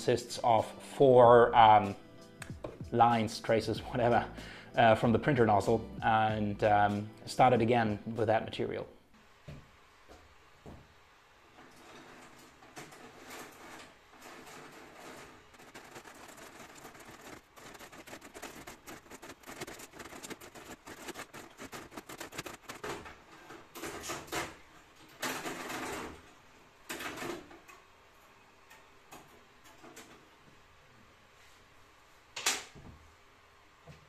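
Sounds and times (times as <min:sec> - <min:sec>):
plastic gears clicking rapidly: 0:13.2 - 0:23.1.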